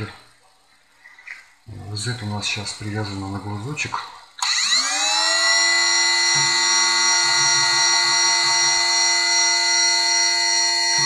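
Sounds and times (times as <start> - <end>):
high-pitched spindle whine: 4.4 - 11.0.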